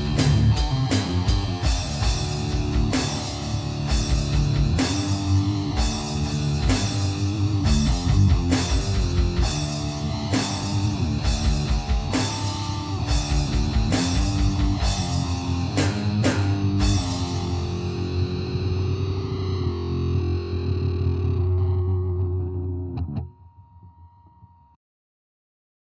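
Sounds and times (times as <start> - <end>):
drums keeping a steady beat: 0.0 - 18.5
electric guitar: 0.0 - 24.5.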